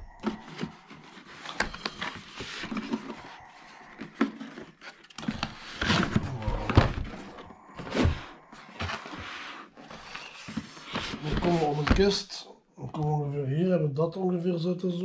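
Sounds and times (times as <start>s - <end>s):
cardboard scraping and rustling: 0.2s - 12.2s.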